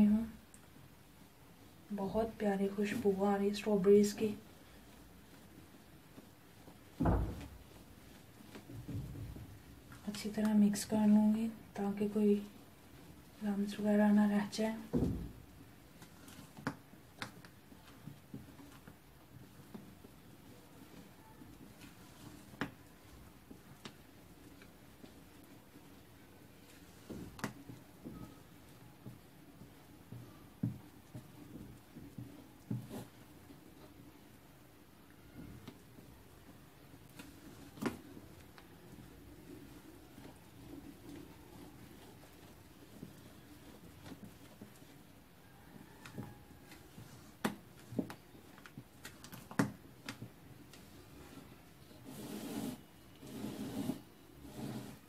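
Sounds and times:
utensil scraping bowl: 0:51.2 - 0:55.0.

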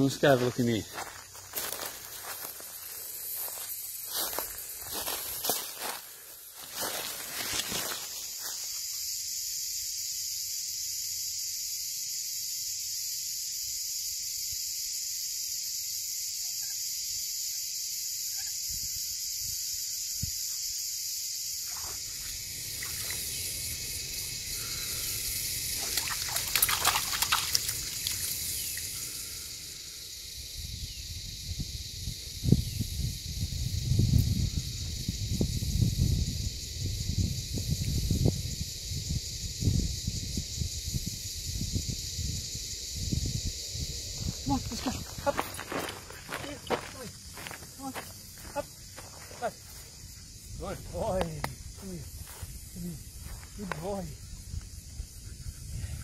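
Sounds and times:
cicada chorus buzzing: 0:00.0 - 0:56.0
footsteps on dry leaf litter: 0:00.1 - 0:08.7, 0:44.8 - 0:50.0.

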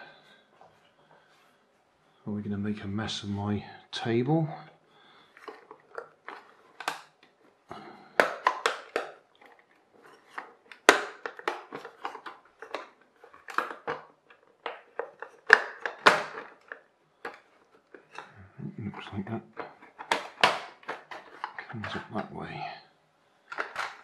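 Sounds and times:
plastic parts cracking and snapping: 0:05.3 - 0:07.4, 0:08.0 - 0:22.3, 0:23.5 - 0:24.0.

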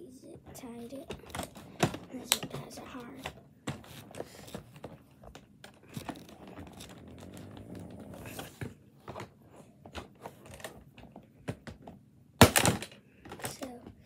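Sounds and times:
packaging crinkling and rustling: 0:03.7 - 0:09.4.

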